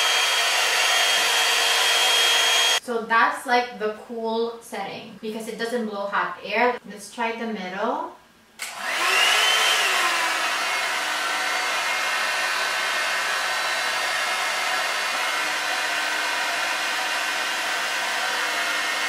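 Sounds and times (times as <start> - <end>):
hot air brush motor whine: 0.0 - 2.8, 8.7 - 19.0.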